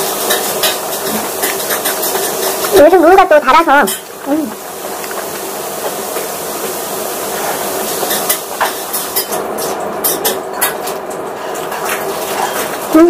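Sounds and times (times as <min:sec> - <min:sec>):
dishes and cutlery clinking: 0:00.0 - 0:02.9, 0:03.7 - 0:04.3, 0:07.4 - 0:13.0
background kitchen hiss: 0:00.0 - 0:13.0.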